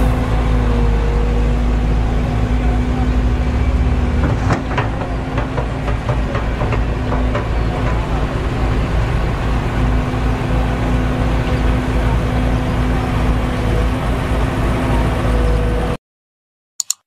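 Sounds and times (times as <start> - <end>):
construction machinery engine drone: 0.0 - 16.0
sharp knocks: 4.2 - 8.3.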